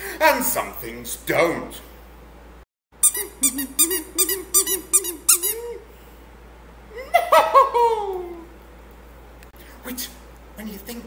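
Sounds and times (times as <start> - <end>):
squeaky toy squeaking: 3.0 - 5.7.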